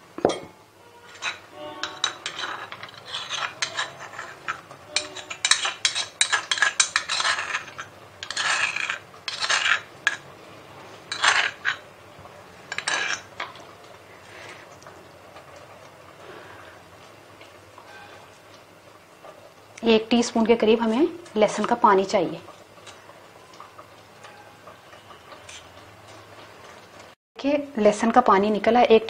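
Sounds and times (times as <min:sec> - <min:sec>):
garlic scraping into strainer: 0:01.1 - 0:10.2, 0:11.1 - 0:11.8.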